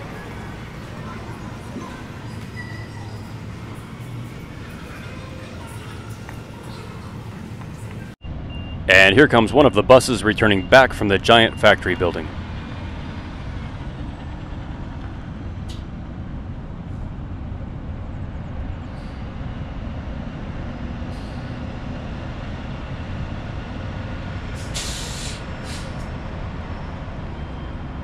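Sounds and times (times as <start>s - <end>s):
bus engine running: 0.0s - 28.0s
air brakes hissing: 18.8s - 19.4s, 21.1s - 21.7s, 24.6s - 26.1s.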